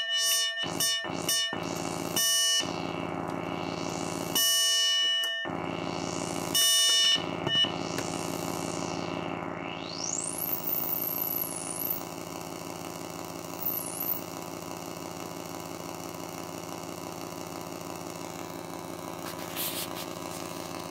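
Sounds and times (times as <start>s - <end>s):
synthesizer buzzing drone: 0.0s - 20.9s
high whistling synth sweep: 7.5s - 12.1s.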